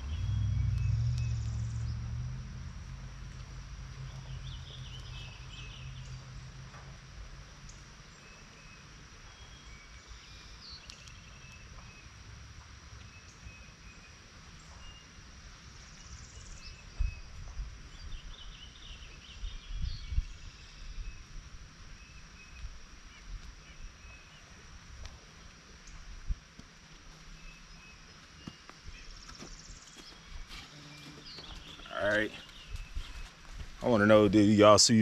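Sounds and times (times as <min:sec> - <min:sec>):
wind rumbling on microphone: 0:00.0 - 0:07.2, 0:16.6 - 0:26.5, 0:31.2 - 0:35.0
birds chirping and singing: 0:27.4 - 0:35.0.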